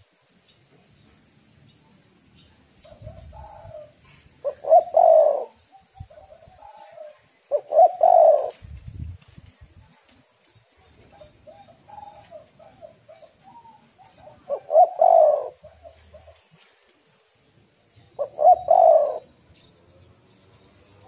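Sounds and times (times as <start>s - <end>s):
dove cooing: 2.9s - 8.7s, 10.9s - 16.7s, 18.2s - 19.4s.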